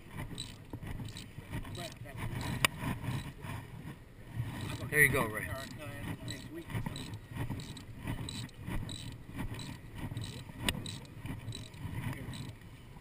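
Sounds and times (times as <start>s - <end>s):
wind and water rumble: 0.0s - 13.0s
rigging clicks and knocks: 4.5s - 12.6s.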